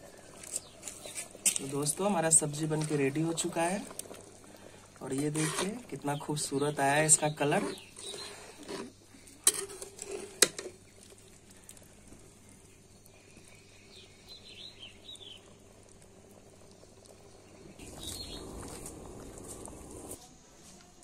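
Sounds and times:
spatula scraping metal pan: 5.1s - 5.8s, 7.4s - 10.7s
faint bird chirps: 12.4s - 15.6s, 17.3s - 18.6s.

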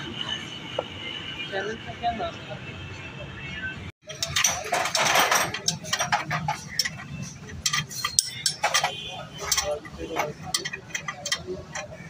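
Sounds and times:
metal tools clinking: 4.1s - 12.0s.

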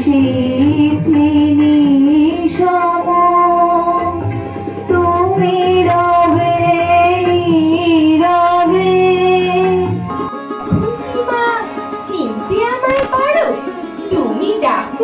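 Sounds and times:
woman singing: 0.0s - 4.3s, 4.9s - 10.0s
instrumental accompaniment: 0.0s - 15.0s.

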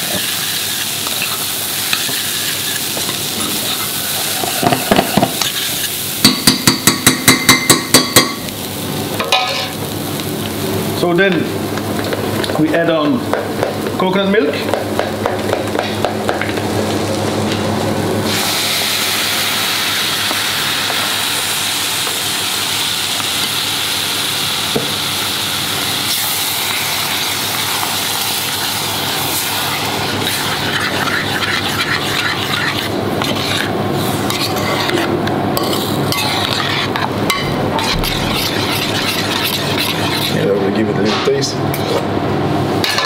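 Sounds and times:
spoon stirring and scraping pan: 0.0s - 8.2s, 26.1s - 42.1s
coconut milk sizzling in a pan: 0.0s - 40.9s.

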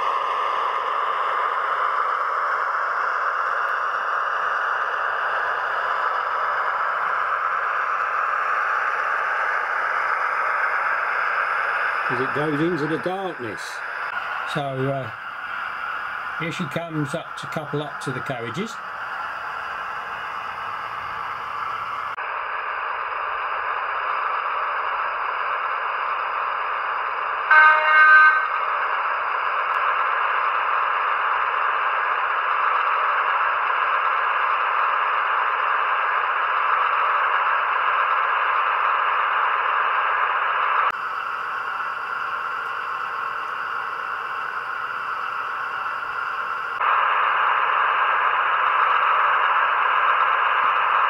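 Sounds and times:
model locomotive engine sound: 0.0s - 51.0s
locomotive horn blast: 27.5s - 28.6s.

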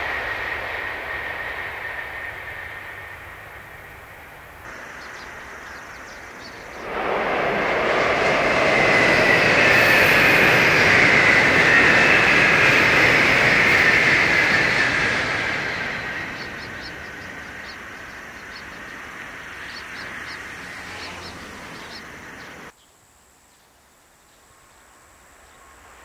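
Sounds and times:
high-speed train rushing past: 0.0s - 22.7s, 25.3s - 26.0s.

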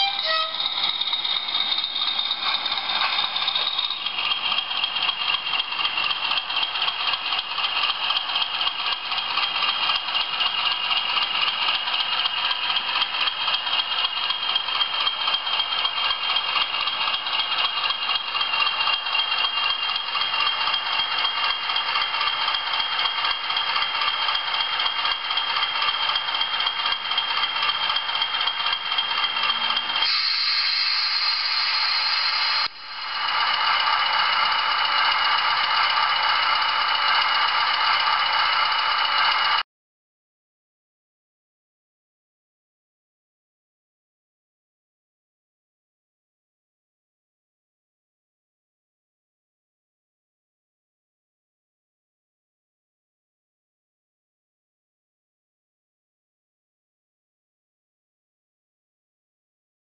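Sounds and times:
model train engine sound: 0.0s - 39.6s
hiss: 30.1s - 32.6s.

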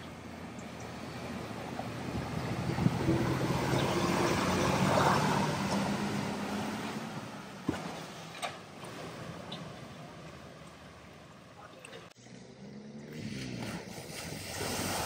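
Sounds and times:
vehicle engine hum: 0.0s - 15.0s
rush of displaced water: 1.9s - 12.1s, 13.5s - 15.0s.

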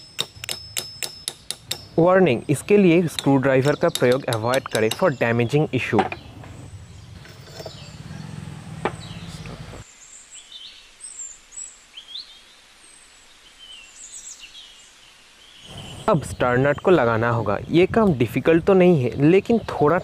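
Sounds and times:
sharp metal taps: 0.0s - 2.0s, 3.0s - 5.3s
birds chirping: 0.0s - 11.4s, 13.6s - 20.0s.

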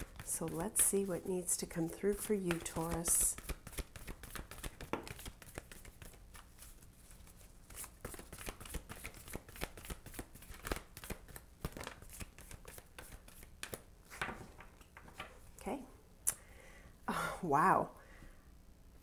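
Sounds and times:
cards being shuffled: 0.0s - 15.4s.

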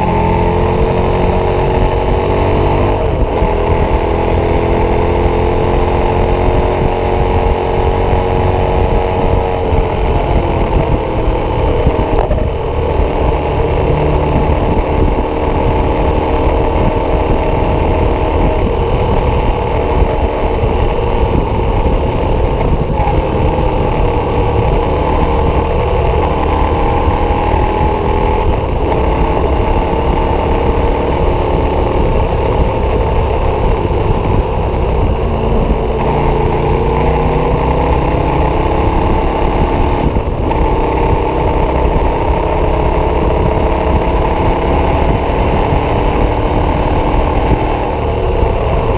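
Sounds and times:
motorcycle engine cruising: 0.0s - 48.9s.

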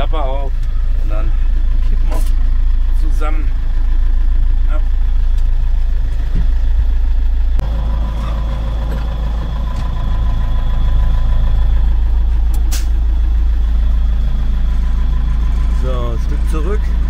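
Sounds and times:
tractor diesel engine running: 0.0s - 17.0s
sharp click: 12.5s - 13.0s.

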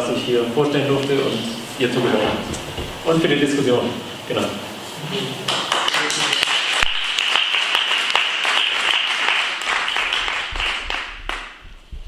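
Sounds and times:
audience applauding: 5.4s - 11.6s.

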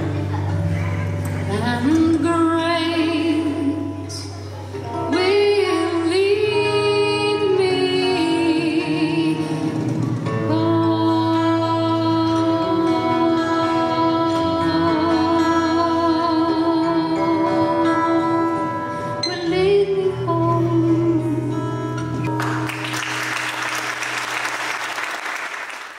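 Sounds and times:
acoustic guitar and band: 0.0s - 24.8s
audience applause: 22.3s - 25.9s.

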